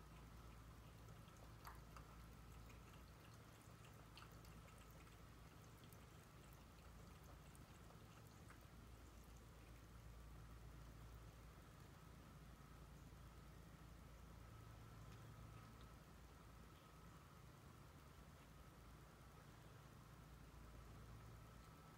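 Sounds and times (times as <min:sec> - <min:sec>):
cat lapping water: 0:00.0 - 0:12.2.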